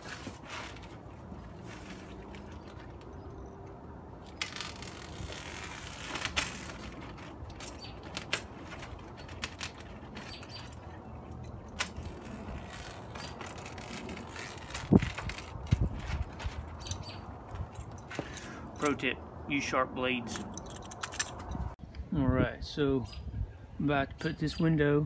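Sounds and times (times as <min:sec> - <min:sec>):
house wrap rustling and crinkling: 0:00.0 - 0:03.6, 0:04.2 - 0:19.0.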